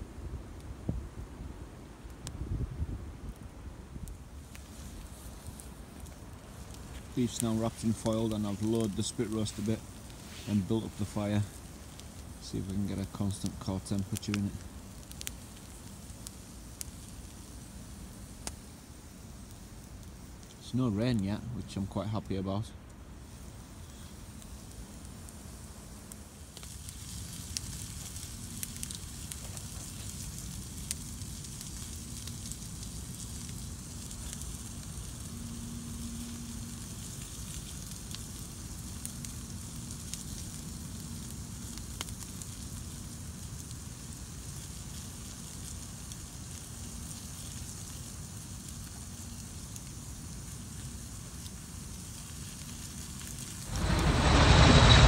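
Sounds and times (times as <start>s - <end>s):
campfire crackling and popping: 0.0s - 55.0s.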